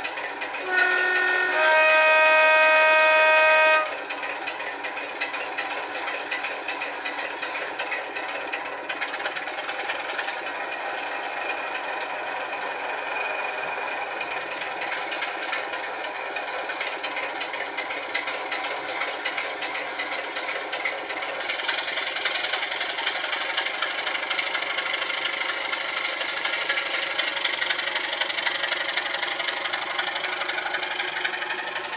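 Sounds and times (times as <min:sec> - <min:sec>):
diesel engine through small speaker: 0:00.6 - 0:04.0.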